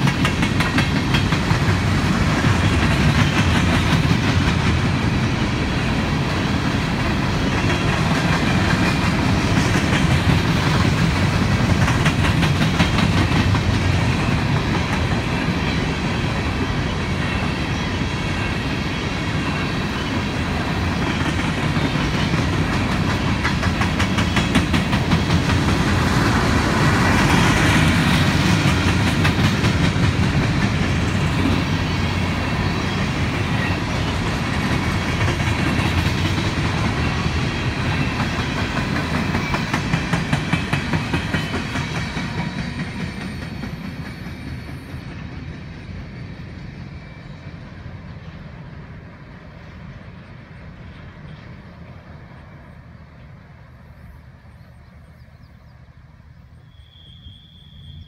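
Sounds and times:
train wheels clacking over rail joints: 0.0s - 18.7s, 19.4s - 46.8s.

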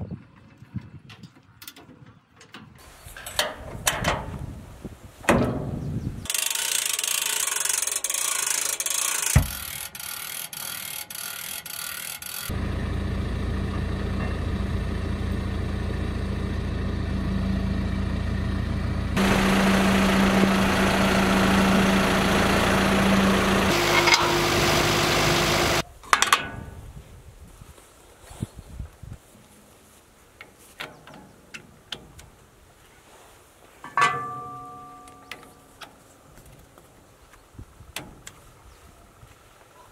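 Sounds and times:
metal fittings clunking: 1.1s - 4.5s, 33.8s - 36.0s
tractor diesel engine running: 12.5s - 25.8s.

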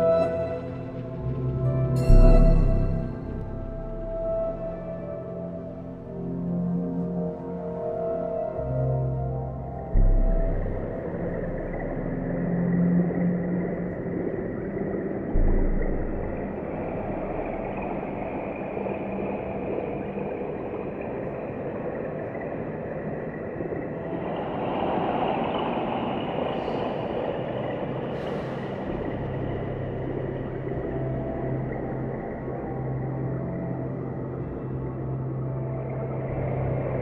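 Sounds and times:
low hum: 0.0s - 7.2s.

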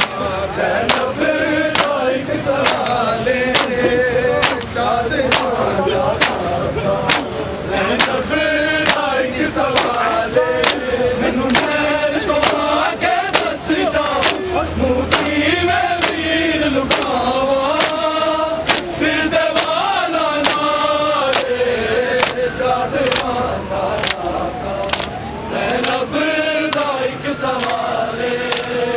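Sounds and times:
men chanting a lament: 0.0s - 28.9s
hands slapping chests: 0.9s - 1.1s, 1.7s - 2.0s, 2.6s - 4.7s, 5.3s - 5.6s, 6.2s - 6.4s, 7.1s - 7.3s, 9.7s - 10.0s, 13.3s - 14.5s, 17.8s - 18.9s, 23.0s - 23.3s, 24.0s - 24.2s, 24.8s - 26.0s, 26.7s - 26.9s, 27.6s - 27.8s.

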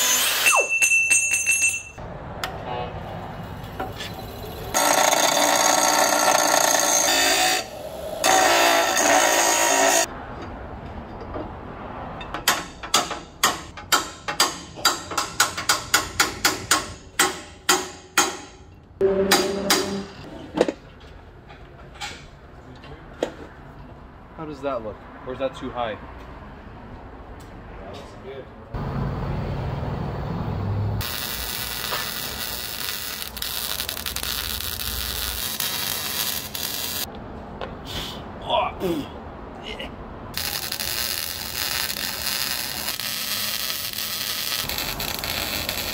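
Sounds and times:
bench grinder grinding steel: 4.8s - 10.1s
hammer striking steel tube: 12.3s - 20.3s
welding arc crackling: 31.0s - 37.1s, 40.4s - 45.9s.

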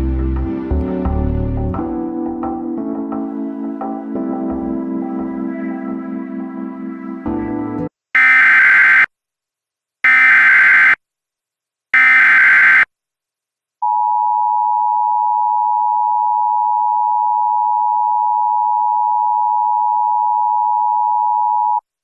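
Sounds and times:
data tone bursts: 12.0s - 12.9s.

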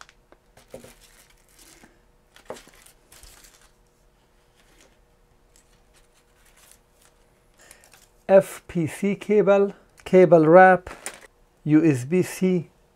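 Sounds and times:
plastic packaging crinkling: 0.0s - 3.8s.

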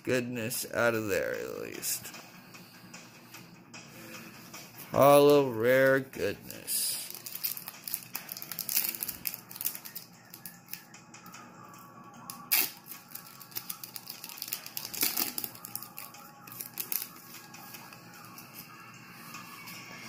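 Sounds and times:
faint background music: 0.0s - 20.0s
foil wrapper crinkling: 7.0s - 10.6s, 12.5s - 17.3s.

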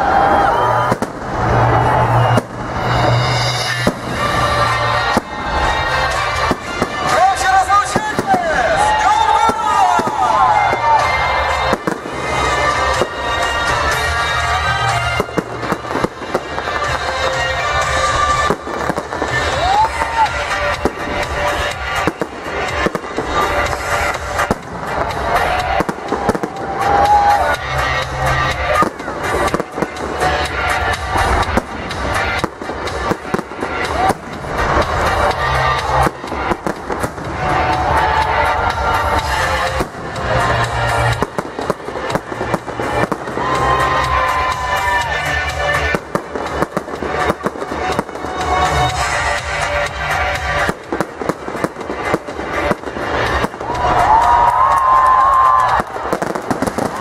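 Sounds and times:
music playing: 0.0s - 57.0s
firework shells bursting: 45.7s - 57.0s.

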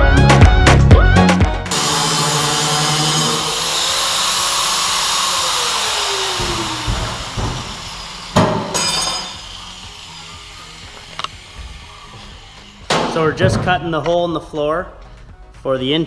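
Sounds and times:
power tool grinding metal: 1.7s - 13.4s.

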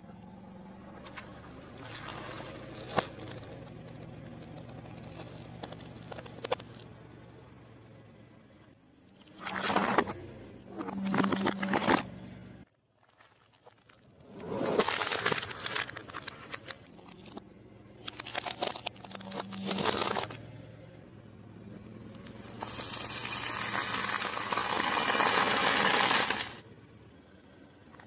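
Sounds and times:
tyre crushing small objects: 9.3s - 12.1s, 13.1s - 20.4s.

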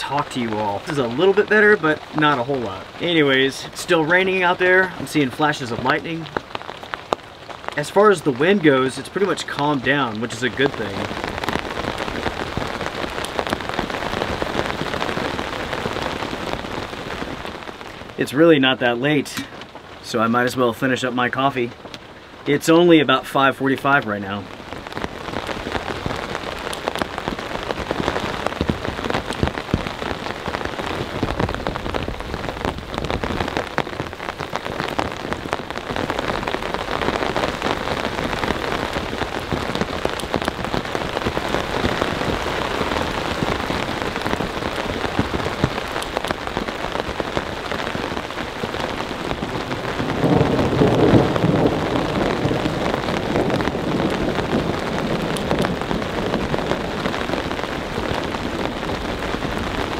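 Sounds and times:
heavy rain falling: 0.0s - 59.9s
low rumble of thunder: 49.3s - 59.8s.

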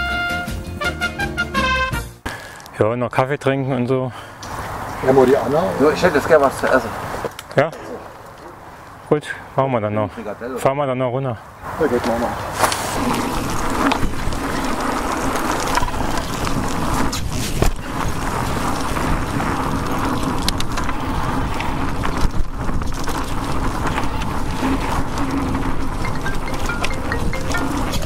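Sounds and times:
wind: 2.2s - 28.0s
tyre noise on trail: 4.2s - 9.5s, 11.6s - 28.0s.

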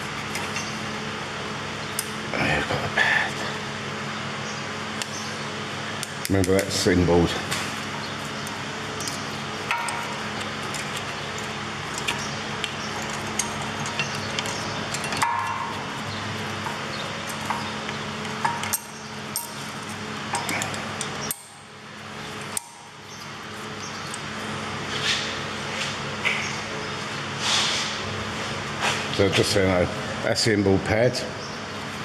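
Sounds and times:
steady machine hum: 0.0s - 32.0s
screwdriver clinking on brake pads: 9.0s - 21.5s.

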